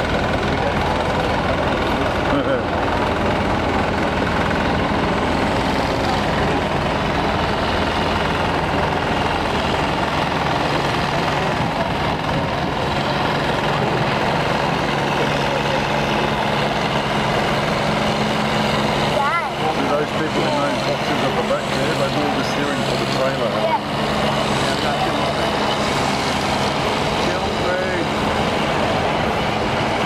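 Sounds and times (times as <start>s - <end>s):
heavy diesel engines rumbling: 0.0s - 30.0s.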